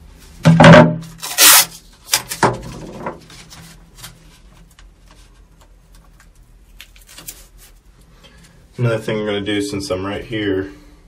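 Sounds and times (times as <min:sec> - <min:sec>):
tape ripping: 0:01.1 - 0:02.4, 0:06.7 - 0:07.8
tape rustling: 0:03.2 - 0:08.1.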